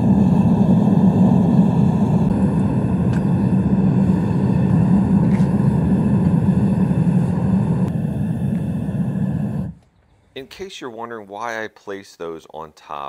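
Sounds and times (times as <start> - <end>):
gas furnace rushing: 0.0 - 9.8.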